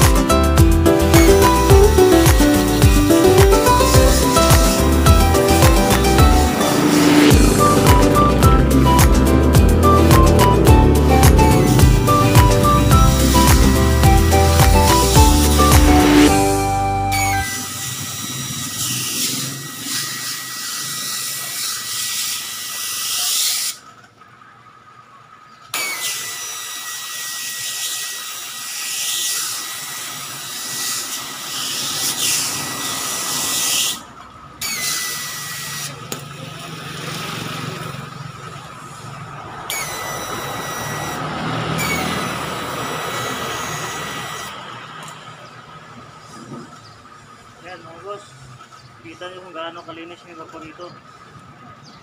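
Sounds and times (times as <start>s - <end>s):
hose spray hissing with whistle: 1.0s - 9.3s, 9.9s - 19.6s.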